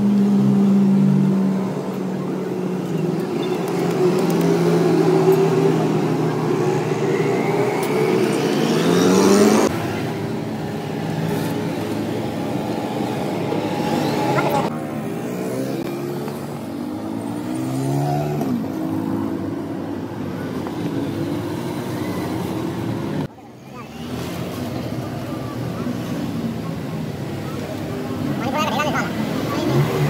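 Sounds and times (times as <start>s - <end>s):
vehicle engine revving: 0.0s - 10.1s, 10.8s - 23.3s.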